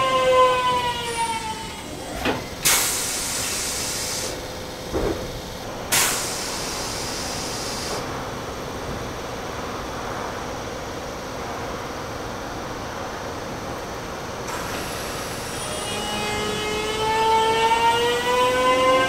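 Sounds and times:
stationary train humming: 0:00.0 - 0:19.0
compressed-air hiss: 0:02.6 - 0:04.4, 0:05.9 - 0:08.1.

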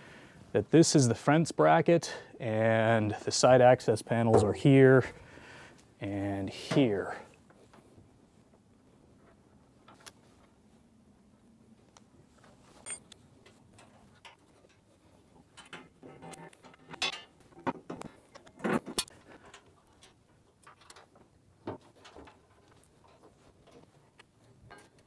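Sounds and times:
metallic clicks and rattles: 0:15.5 - 0:21.2.

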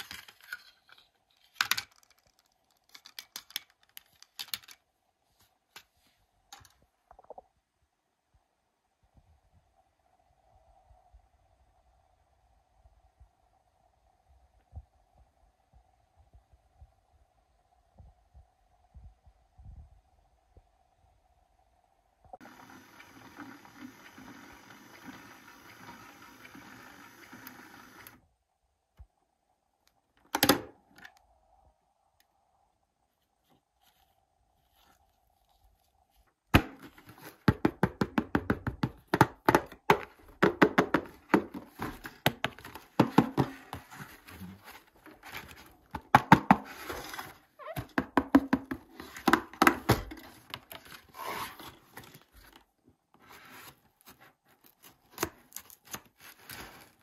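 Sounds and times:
cardboard and plastic packaging crackling: 0:41.2 - 0:47.9, 0:53.4 - 0:57.0.

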